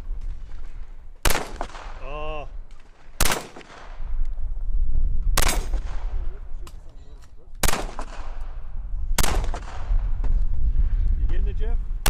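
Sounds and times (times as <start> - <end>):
pistol shots with echo: 1.2 - 2.2, 2.8 - 4.1, 5.4 - 6.4, 7.6 - 10.2.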